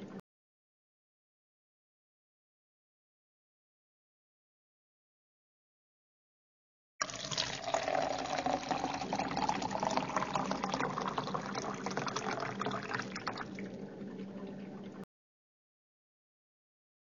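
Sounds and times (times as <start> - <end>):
water pouring into a glass: 7.0 - 13.8.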